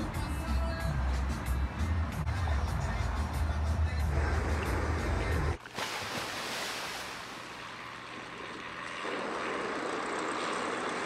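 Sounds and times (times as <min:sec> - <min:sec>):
propeller engine running: 0:07.2 - 0:11.0.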